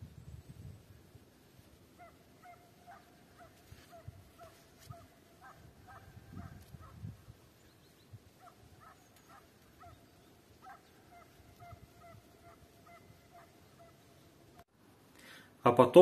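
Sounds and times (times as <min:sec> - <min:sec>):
distant hound barking: 0:02.0 - 0:07.0, 0:08.3 - 0:14.1.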